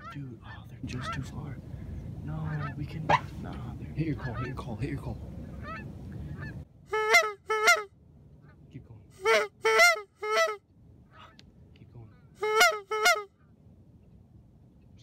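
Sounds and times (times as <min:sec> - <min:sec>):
low rumbling noise: 0:00.2 - 0:15.0
goose call honks: 0:02.4 - 0:03.4, 0:04.1 - 0:04.6, 0:05.6 - 0:08.6, 0:09.2 - 0:11.4, 0:12.4 - 0:13.4.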